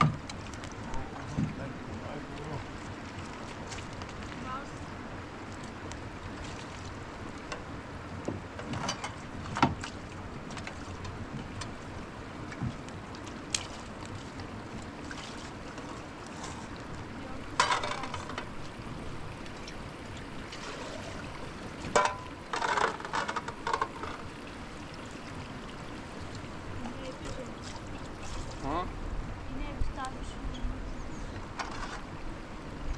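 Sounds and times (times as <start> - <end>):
outdoor wind noise: 0.0 - 32.9
metal plates clinking: 22.0 - 24.2.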